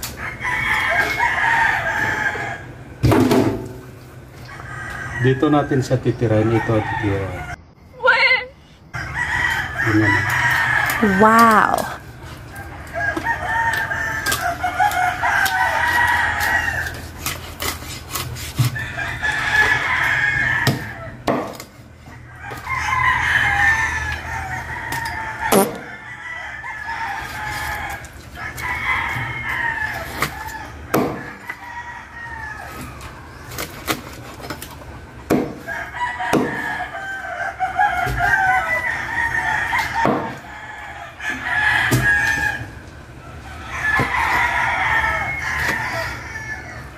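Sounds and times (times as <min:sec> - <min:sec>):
chickens crowing: 0:00.0 - 0:03.0, 0:03.8 - 0:46.9
cleaver chopping on wooden board: 0:20.6 - 0:21.7, 0:25.5 - 0:25.9, 0:30.2 - 0:31.5, 0:35.3 - 0:35.7, 0:36.3 - 0:36.8, 0:40.0 - 0:40.4.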